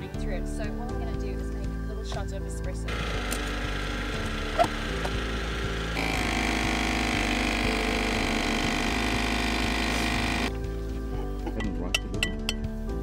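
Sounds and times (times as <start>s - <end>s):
espresso machine pump humming: 2.9s - 10.6s.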